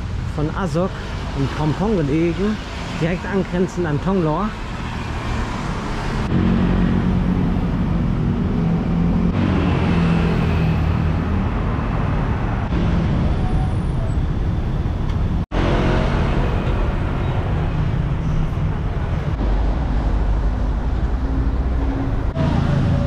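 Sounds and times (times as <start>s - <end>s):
passing vehicles: 0.0s - 23.0s
vehicle engine low hum: 5.1s - 23.0s.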